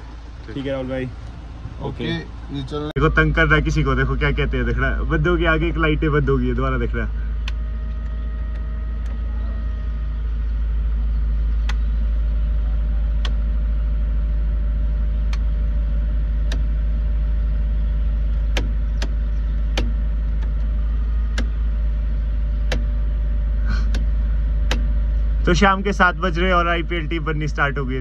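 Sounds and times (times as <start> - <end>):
car engine idling: 0.0 - 28.0
sharp clicks: 11.6 - 11.8, 16.4 - 16.7, 22.6 - 22.9.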